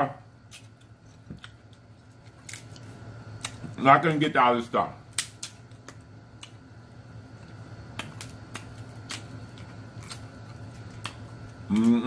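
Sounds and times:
faint steady hum: 0:00.0 - 0:12.0
person humming: 0:11.6 - 0:12.0.

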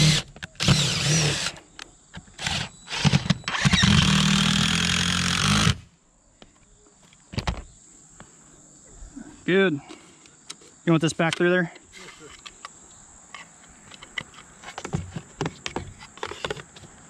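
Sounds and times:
impact driver driving screws: 0:00.0 - 0:01.6, 0:02.3 - 0:05.8.

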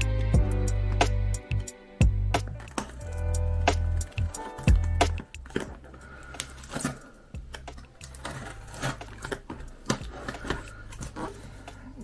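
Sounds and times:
cardboard package being opened: 0:02.6 - 0:12.0.

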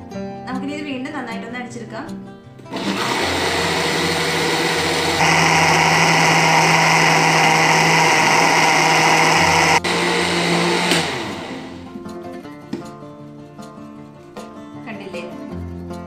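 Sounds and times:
mixer grinder motor running: 0:02.7 - 0:11.9.

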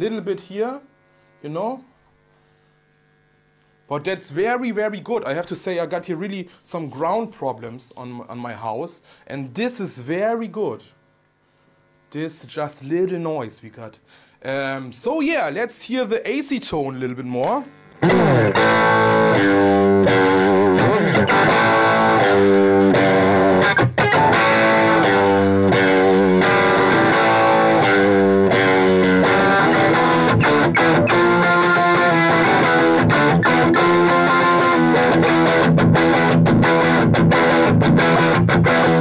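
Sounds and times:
electric guitar strumming rock chords: 0:17.4 - 0:39.0.

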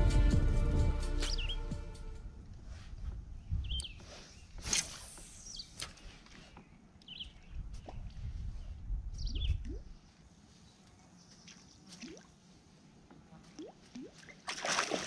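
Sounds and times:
low rumble: 0:00.0 - 0:03.0.

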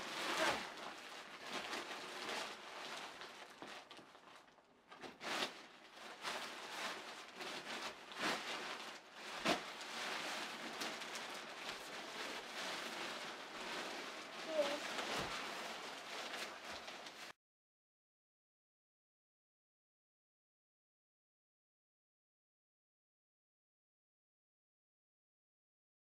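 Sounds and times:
nylon fabric rustling and crinkling: 0:00.0 - 0:17.4.

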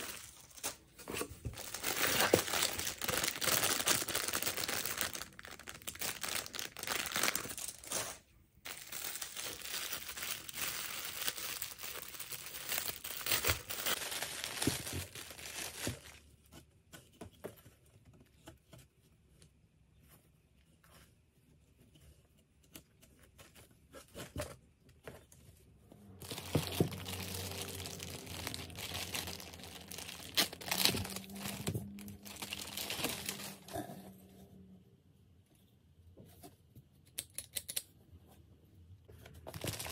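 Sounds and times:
plastic bags crinkling: 0:00.0 - 0:16.2, 0:26.2 - 0:33.8, 0:39.5 - 0:39.9.

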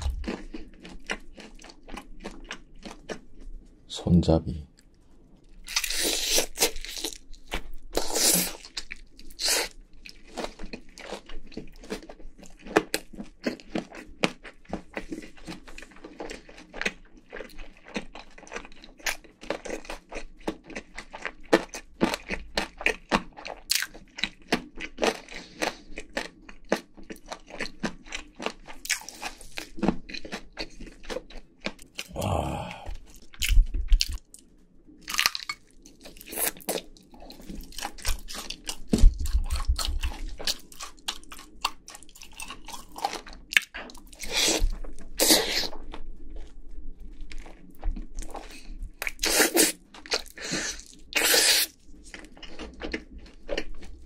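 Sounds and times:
crunching and chewing fried chicken: 0:00.0 - 0:03.8, 0:04.8 - 0:54.0.

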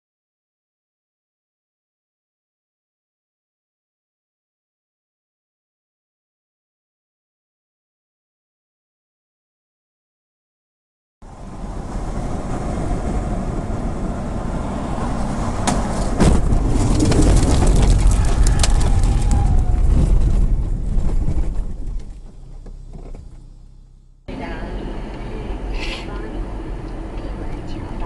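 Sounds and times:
heavy rumbling with sharp clatters: 0:11.2 - 0:25.4
tyre and road rumble: 0:11.2 - 0:28.0.

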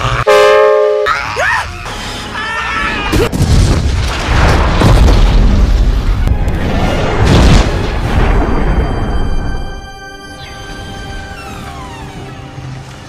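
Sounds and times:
deep rumbling explosion: 0:03.2 - 0:09.8
film score music: 0:06.0 - 0:13.0.

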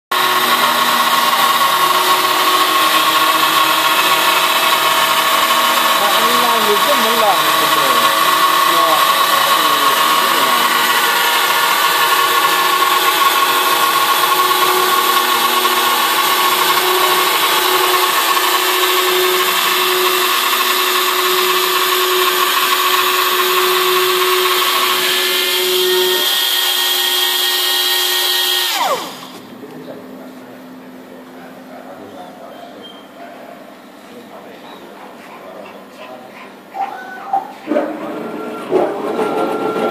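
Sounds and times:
router spindle whine: 0:00.1 - 0:29.5.

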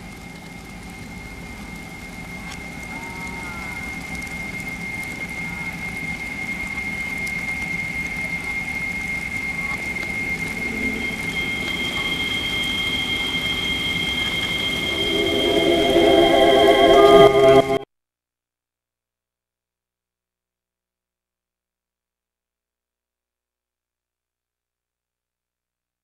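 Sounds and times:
rain-like hiss: 0:00.0 - 0:17.8
high whistling tone: 0:01.8 - 0:17.8
higher tone: 0:09.4 - 0:17.8
organ-like chords: 0:10.1 - 0:17.8.

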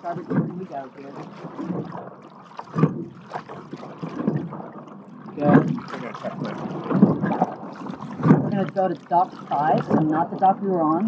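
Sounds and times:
oar stroke knock and splash: 0:00.0 - 0:11.0
water rushing along rowing boat: 0:00.0 - 0:11.0.

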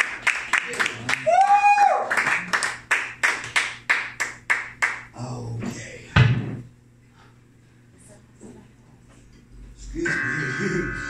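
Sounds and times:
heavy thump: 0:06.2 - 0:06.7
electric guitar strumming: 0:10.0 - 0:11.0
wailing bending guitar note: 0:10.0 - 0:11.0.

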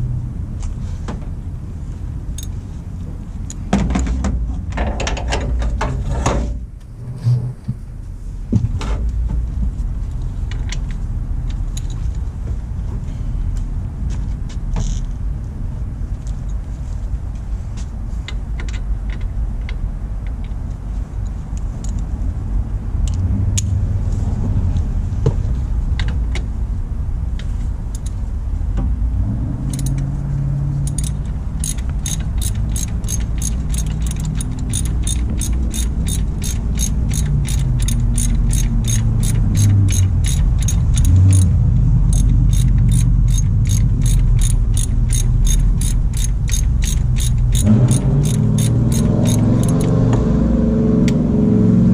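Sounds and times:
ratchet wrench clicking: 0:29.7 - 0:30.0, 0:30.8 - 0:50.0.

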